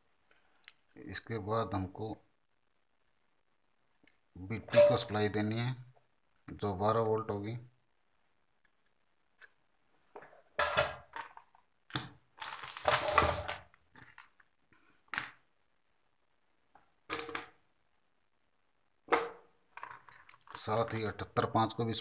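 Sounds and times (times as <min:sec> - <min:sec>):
rustling and clattering on a workbench: 0:12.6 - 0:14.2.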